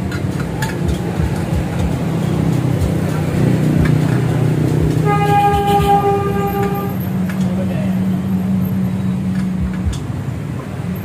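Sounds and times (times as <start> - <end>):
steady horn tone: 3.4 - 7.2.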